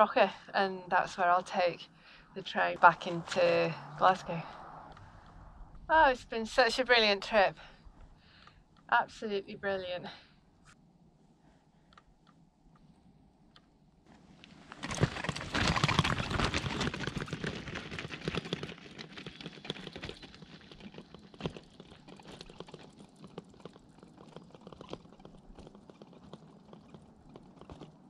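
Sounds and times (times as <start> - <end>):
bike tyres crunching on gravel: 14.5 - 24.8
stones rattling: 14.7 - 28.0.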